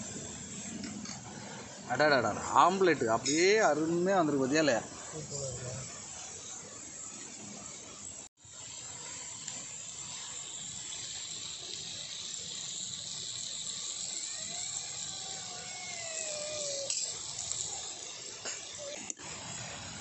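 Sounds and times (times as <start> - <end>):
cooking pot sizzling: 0.0 - 20.0
long falling animal call: 14.2 - 16.9.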